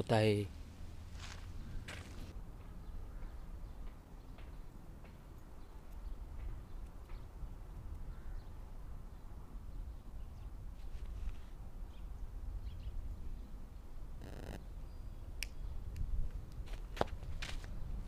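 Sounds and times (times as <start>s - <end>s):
wind rumbling on microphone: 0.6s - 18.0s.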